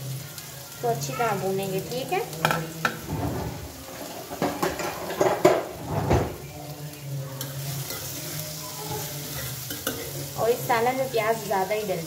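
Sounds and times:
spatula stirring onions: 0:00.0 - 0:03.0, 0:06.6 - 0:12.0
onions sizzling in hot oil: 0:00.0 - 0:12.0
knocks and clatters: 0:04.3 - 0:06.4.

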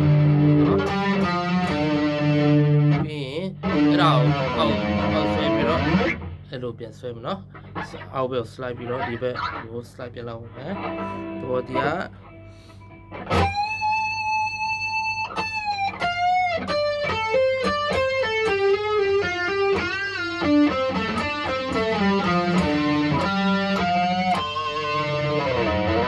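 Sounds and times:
electric guitar lead solo: 0:00.0 - 0:06.4, 0:10.5 - 0:26.0.

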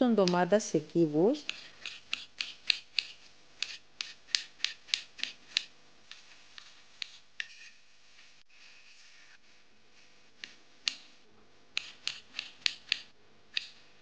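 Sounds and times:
knife chopping on cutting board: 0:01.4 - 0:05.7.

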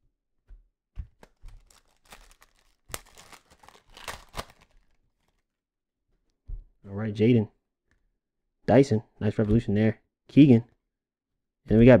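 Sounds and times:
foil wrapper tearing and crinkling: 0:01.2 - 0:05.4.

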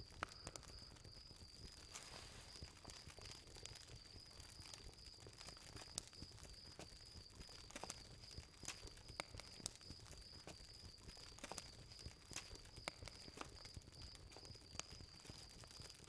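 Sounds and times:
faint background hiss: 0:00.0 - 0:16.0
soft ticks: 0:00.1 - 0:04.0.

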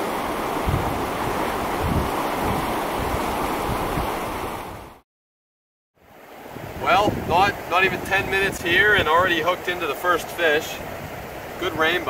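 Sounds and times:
river water rushing over boulders: 0:00.0 - 0:05.0, 0:06.0 - 0:12.0
wind buffeting microphone: 0:00.0 - 0:05.0, 0:06.4 - 0:09.4, 0:10.8 - 0:12.0.

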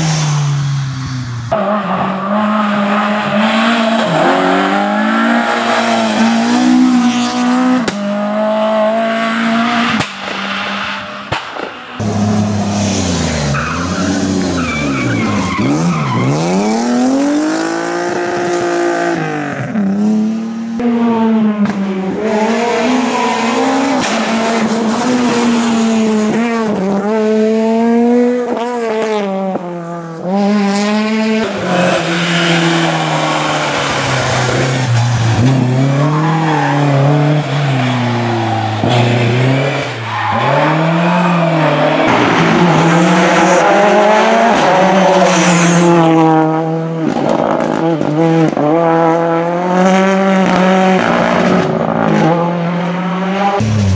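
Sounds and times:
rally car engines revving: 0:00.0 - 0:53.9
tyre squeal: 0:12.4 - 0:16.9.

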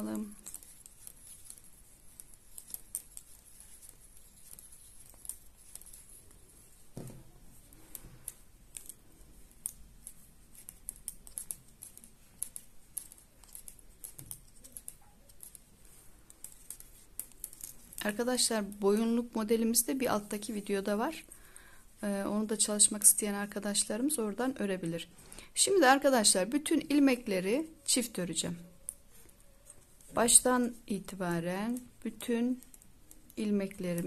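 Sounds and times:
knitting needles clicking: 0:00.0 - 0:21.4, 0:28.6 - 0:34.0.

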